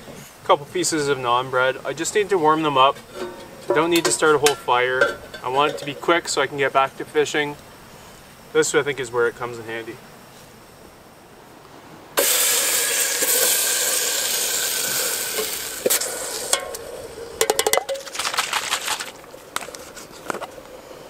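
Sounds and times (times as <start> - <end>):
chicken sizzling in hot pot: 1.0 - 7.4, 12.2 - 21.0
container scraping metal pot: 2.2 - 6.3, 17.4 - 20.6.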